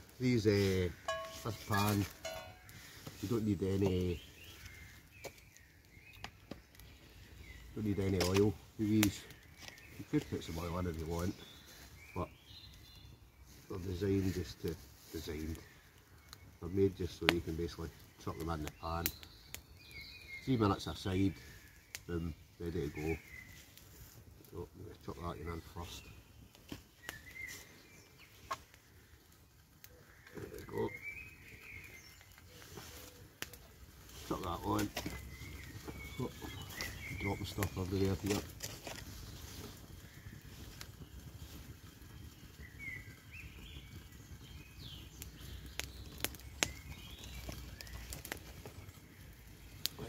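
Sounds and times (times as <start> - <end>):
birds calling: 0.0 - 50.0
campfire crackling and popping: 0.0 - 50.0
sharp wood snaps: 5.2 - 6.9, 8.1 - 10.3, 34.7 - 36.0, 45.2 - 48.7.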